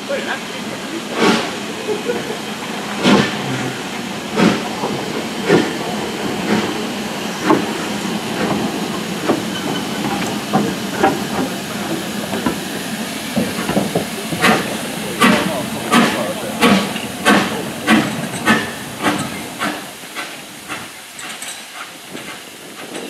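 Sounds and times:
steam hissing: 0:00.0 - 0:23.0
steam locomotive beat: 0:00.0 - 0:23.0.

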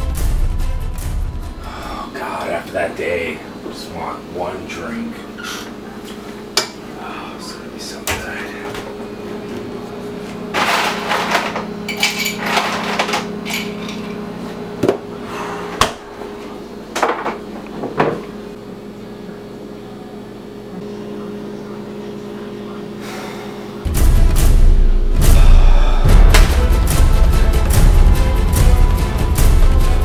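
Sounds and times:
steady low hum: 0:00.0 - 0:30.0
glass and bottles clinking: 0:10.6 - 0:14.2.

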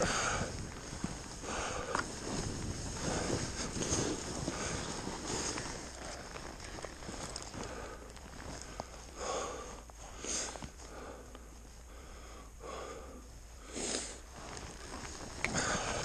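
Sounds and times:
skis swishing through powder snow: 0:00.0 - 0:09.1, 0:13.8 - 0:16.0.

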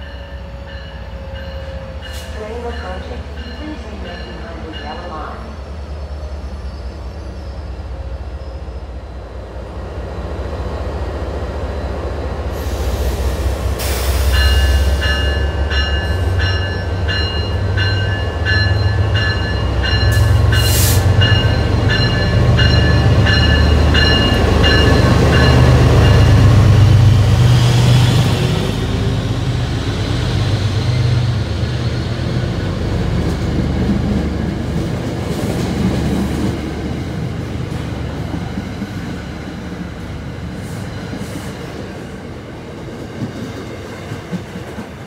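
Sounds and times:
locomotive bell ringing: 0:00.0 - 0:05.5, 0:14.3 - 0:26.8
air hiss bursts: 0:12.6 - 0:15.1.

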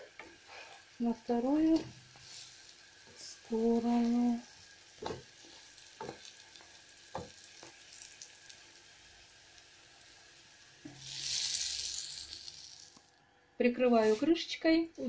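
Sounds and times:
food sizzling in oil: 0:00.0 - 0:13.2
wooden spatula knocking pan: 0:05.0 - 0:05.3, 0:06.0 - 0:06.3, 0:07.1 - 0:07.8.

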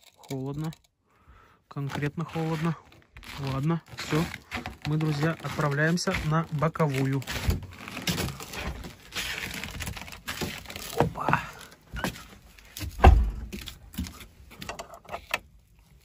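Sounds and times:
handling clicks and knocks: 0:01.8 - 0:09.0, 0:09.8 - 0:15.6
heavy thump: 0:12.8 - 0:13.6.

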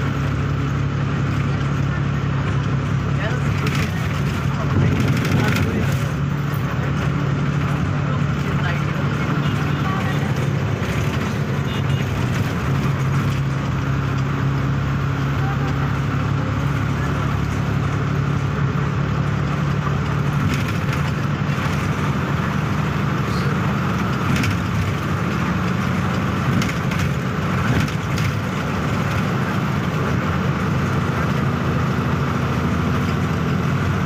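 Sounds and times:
tyre and road noise: 0:00.0 - 0:34.0
vehicle engine cruising: 0:00.0 - 0:34.0.

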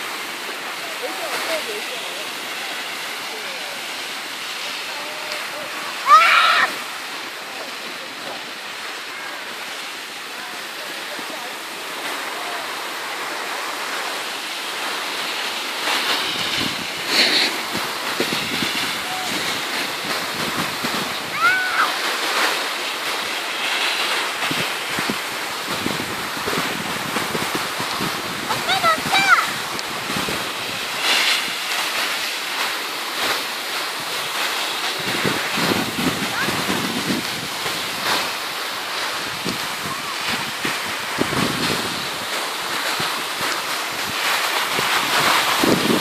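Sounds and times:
skis sliding on snow: 0:00.0 - 0:46.0
wind on microphone: 0:16.1 - 0:22.0, 0:23.7 - 0:31.7, 0:34.0 - 0:38.4, 0:39.0 - 0:46.0.

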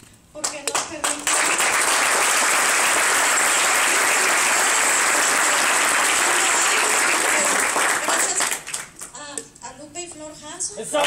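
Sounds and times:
audience applauding: 0:01.0 - 0:09.1.

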